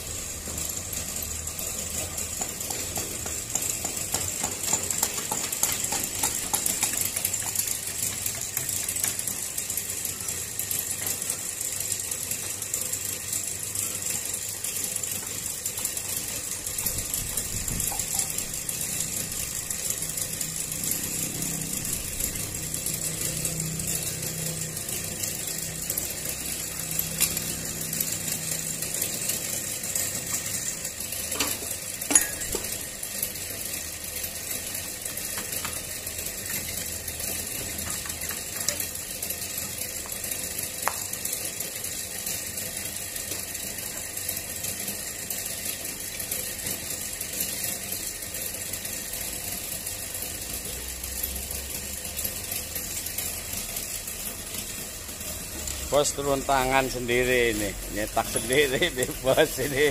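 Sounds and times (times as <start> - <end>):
mechanical rattle and hum: 0.0 - 59.9
sharp metal knocks: 31.4 - 32.7.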